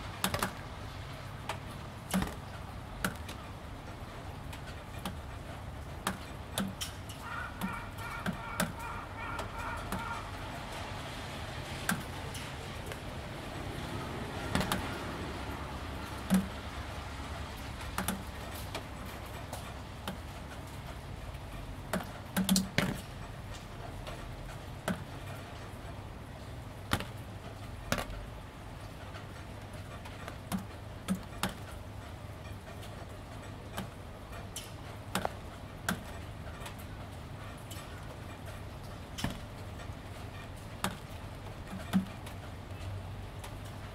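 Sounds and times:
gentle rain hiss: 0.0s - 43.9s
water drops ticking on panel: 14.3s - 16.9s, 19.5s - 23.2s.

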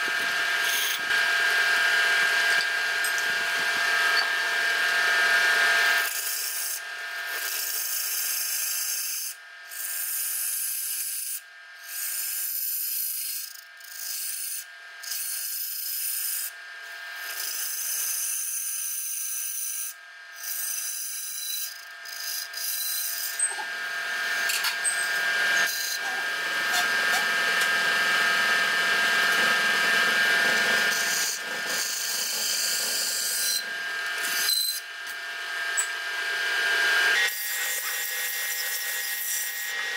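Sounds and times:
wood lathe motor whine: 0.0s - 9.8s, 10.4s - 18.0s, 19.1s - 39.9s.

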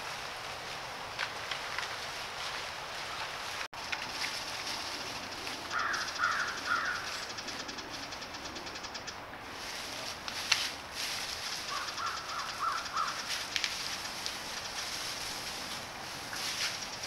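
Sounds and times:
steady hiss: 0.0s - 17.0s
crow cawing: 5.7s - 7.4s, 11.6s - 13.3s.

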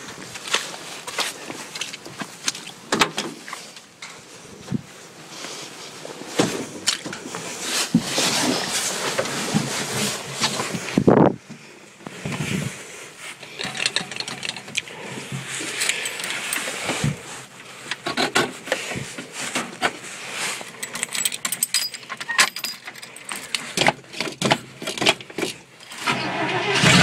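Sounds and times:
rustling and scuffing: 4.6s - 11.4s, 14.9s - 20.8s.

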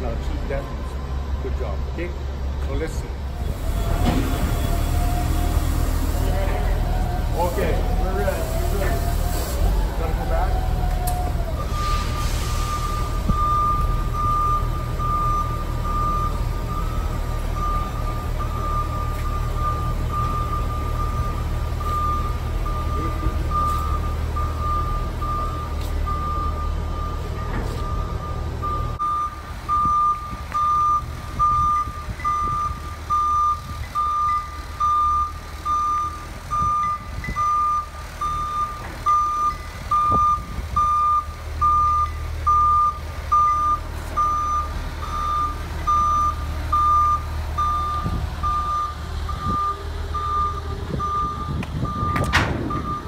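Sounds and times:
engine rumble: 0.0s - 53.0s
forklift reverse alarm beeping: 11.6s - 53.0s.

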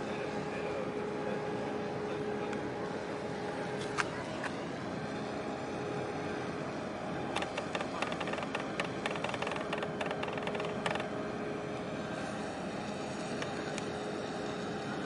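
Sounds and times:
distant machinery hum: 0.0s - 15.0s
small clicks: 7.4s - 11.1s.

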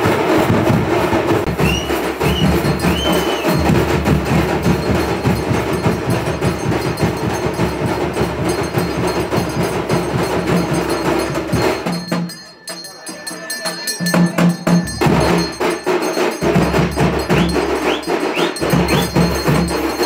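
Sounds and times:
fast percussion drumming: 0.0s - 20.0s
short high notes: 1.5s - 4.1s.

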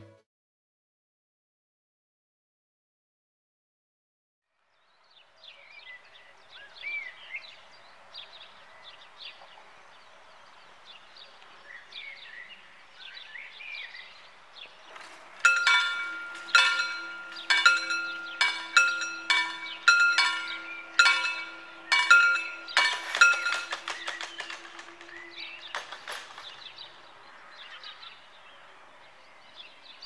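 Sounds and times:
birds chirping: 4.7s - 30.0s
crossing warning bells ringing: 15.4s - 26.4s.

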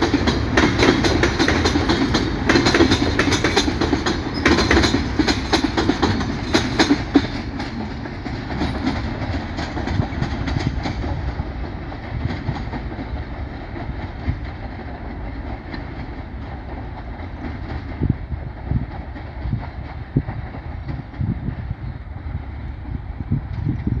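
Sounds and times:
train wheels clacking over rail joints: 0.0s - 21.9s
train rumbling: 0.0s - 24.0s.

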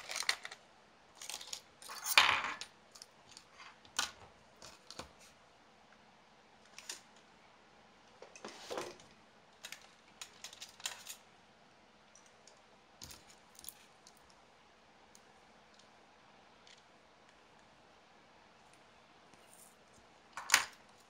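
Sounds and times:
small parts clicking and clattering: 0.0s - 0.6s, 1.2s - 5.0s, 9.6s - 11.2s, 12.1s - 14.3s.

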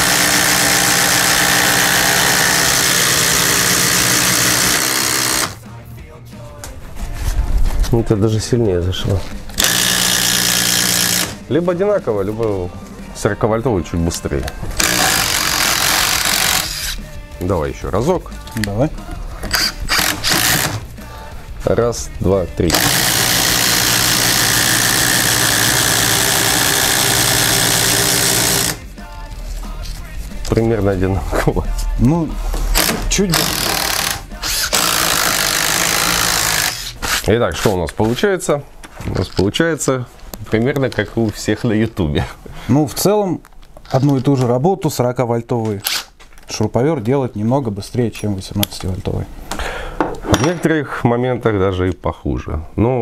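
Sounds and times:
impact drivers drilling wood: 0.0s - 5.6s, 9.5s - 11.4s, 14.8s - 17.0s, 19.4s - 20.8s, 22.7s - 28.8s, 32.8s - 37.3s.

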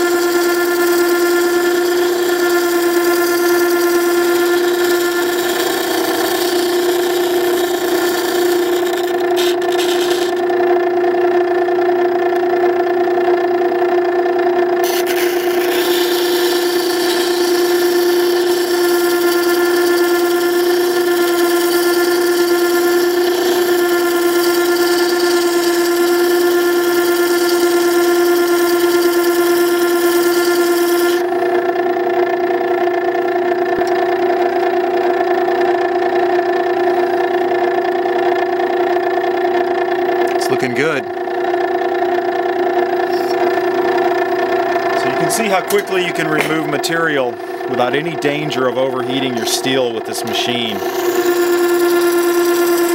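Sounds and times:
chisel grinding on wheel: 0.0s - 10.5s, 14.8s - 31.7s, 44.8s - 52.9s
sharpening machine motor hum: 0.0s - 52.9s.

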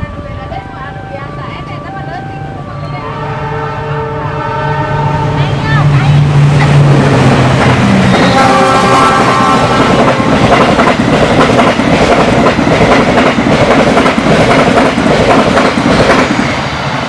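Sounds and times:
train wheels rumbling on rail: 0.0s - 17.0s
clickety-clack over rail joints: 9.3s - 16.5s.

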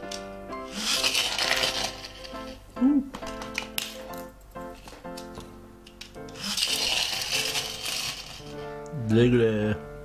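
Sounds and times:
background music with simple melody: 0.0s - 10.0s
plastic toy rubbing on tabletop: 0.6s - 2.6s, 6.2s - 8.7s.

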